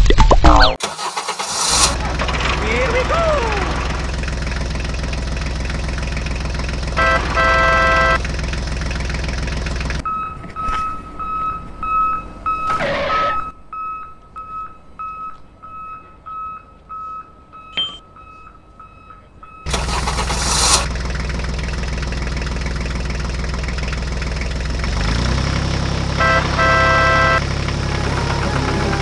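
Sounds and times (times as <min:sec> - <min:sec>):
tractor engine running: 0:00.8 - 0:29.0
steady beeping: 0:10.0 - 0:20.1.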